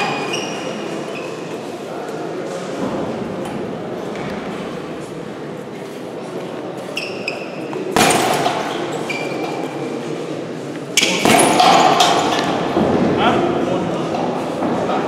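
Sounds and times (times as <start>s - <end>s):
gym room noise: 0.0s - 15.0s.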